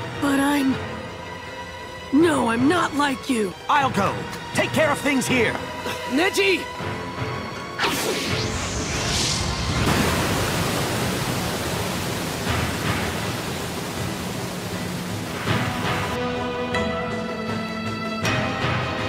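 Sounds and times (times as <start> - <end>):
cartoon whoosh: 7.8 - 9.9
steady rushing noise: 8.1 - 16.2.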